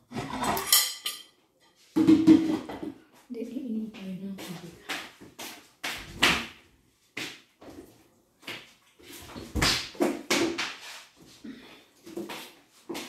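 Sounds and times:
plastic bottle knocks and clatters: 0:02.0 - 0:03.0.

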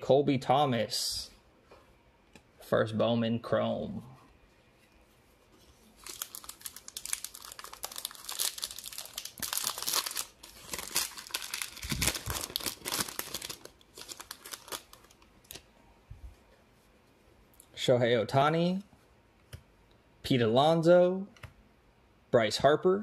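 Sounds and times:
wrapper crinkling and tearing: 0:06.0 - 0:15.6.

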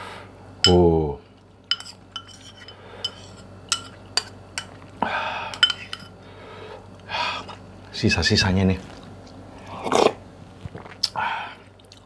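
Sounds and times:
metal spoon clinking on ceramic bowl: 0:01.7 - 0:04.7, 0:05.5 - 0:06.1.

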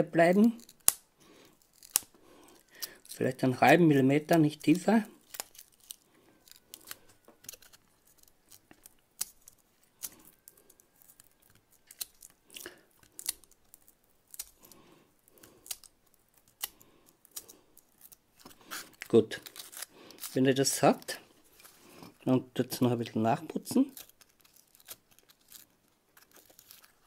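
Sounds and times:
knife scraping foam: 0:18.4 - 0:20.4.

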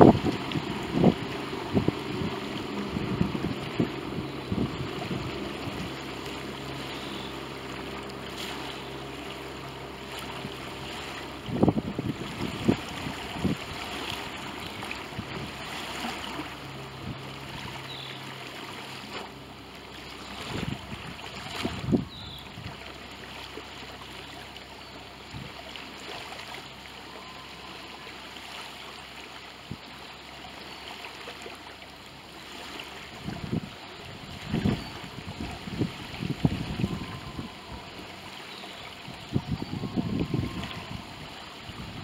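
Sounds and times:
wind buffeting microphone: 0:00.0 - 0:08.2, 0:09.8 - 0:18.1, 0:20.2 - 0:22.9, 0:33.1 - 0:38.3, 0:39.0 - 0:42.0.

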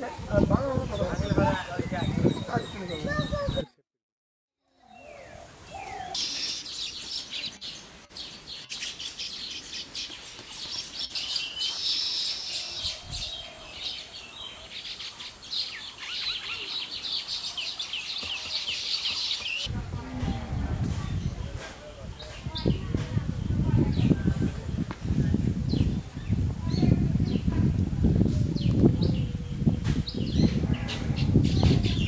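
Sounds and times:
flock of birds chattering: 0:28.6 - 0:32.0.

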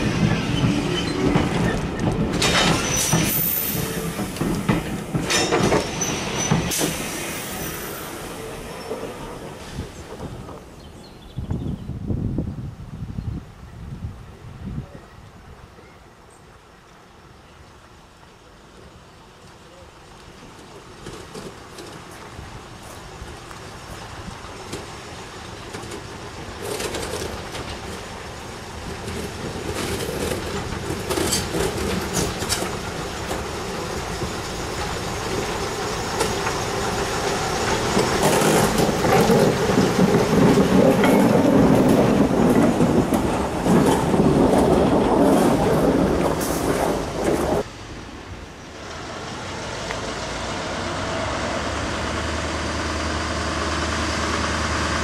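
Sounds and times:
diesel locomotive passing: 0:00.0 - 0:11.2, 0:16.5 - 0:55.0
wheels clicking over rail joints: 0:00.2 - 0:07.6, 0:18.2 - 0:47.7.

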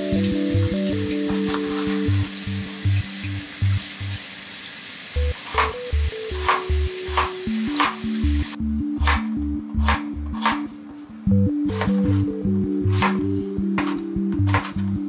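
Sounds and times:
background music with steady beat: 0:00.0 - 0:04.2, 0:05.2 - 0:15.0
tap water hissing: 0:00.0 - 0:08.6
knife cutting carrot on wooden board: 0:05.4 - 0:05.8, 0:09.0 - 0:10.7, 0:12.9 - 0:14.8.

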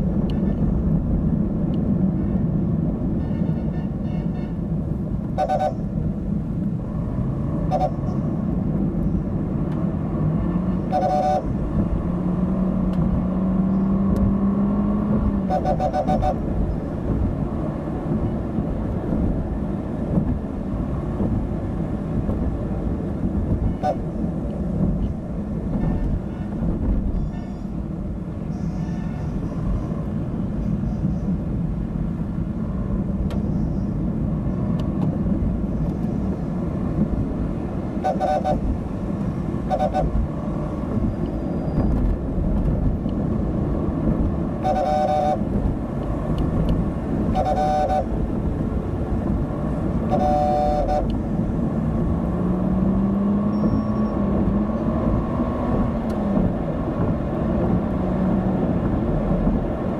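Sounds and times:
road traffic rumbling: 0:00.0 - 0:59.9
vehicle horns honking: 0:00.2 - 0:00.8, 0:03.1 - 0:04.7, 0:05.3 - 0:05.9, 0:07.6 - 0:08.3, 0:10.6 - 0:11.7, 0:15.4 - 0:16.6, 0:23.6 - 0:24.1, 0:25.7 - 0:27.8, 0:28.5 - 0:29.6, 0:38.0 - 0:38.8, 0:39.6 - 0:40.2, 0:44.6 - 0:45.6, 0:47.2 - 0:48.2, 0:50.0 - 0:51.3.

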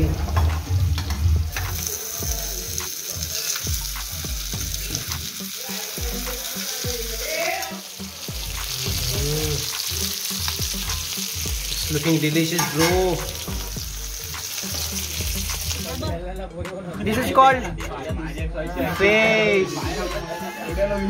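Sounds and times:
food sizzling in pans: 0:00.0 - 0:16.1.

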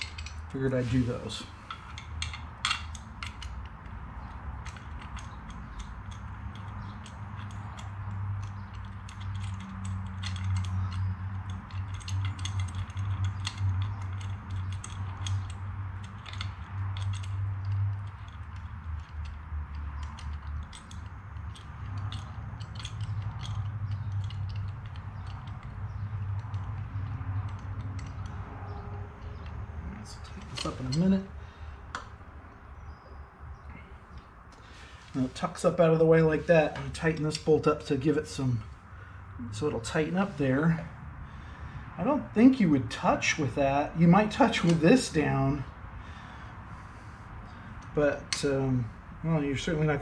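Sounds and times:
metallic clicks and clinks of bolts: 0:00.0 - 0:01.0, 0:01.6 - 0:32.8.

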